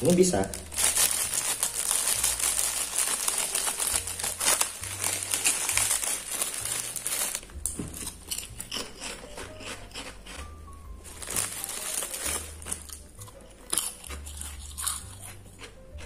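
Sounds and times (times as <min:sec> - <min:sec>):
plastic bag crinkling: 0:00.0 - 0:08.5, 0:11.0 - 0:13.1.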